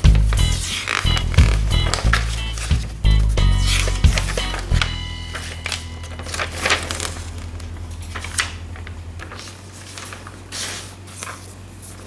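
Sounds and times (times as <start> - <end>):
low hum: 0.0 - 10.1
paper booklet rustling: 0.0 - 12.0.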